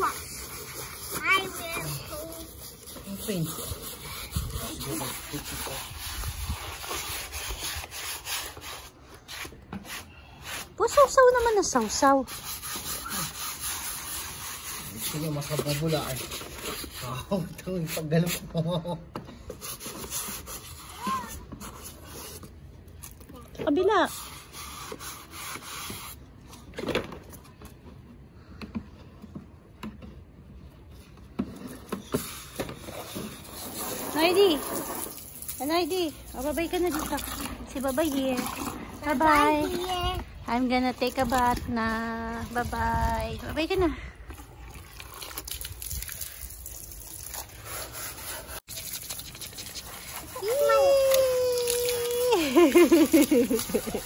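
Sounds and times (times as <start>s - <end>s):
faint rubbing and handling noise: 0.0s - 18.1s
scrape: 0.0s - 18.5s, 19.4s - 22.6s, 24.0s - 26.7s, 30.9s - 35.2s, 47.4s - 50.6s
hand scrubbing a surface: 0.0s - 18.7s, 19.5s - 22.6s, 23.8s - 26.3s, 31.6s - 41.6s, 46.7s - 54.0s.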